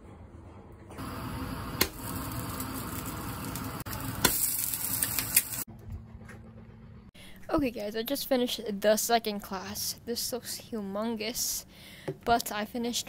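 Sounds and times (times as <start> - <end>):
egg sizzling in a pan: 1.0 - 5.7.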